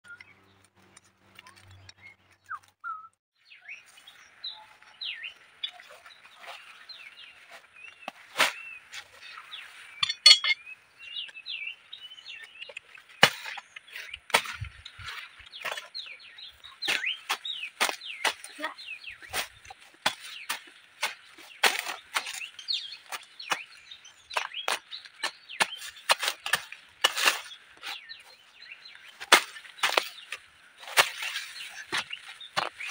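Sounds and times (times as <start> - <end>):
small birds chirping: 0.0 - 32.9.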